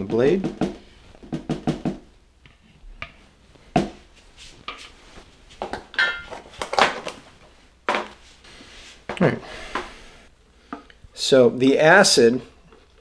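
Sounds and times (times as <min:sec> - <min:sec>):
plastic parts knocking on counter: 0:07.9 - 0:08.2.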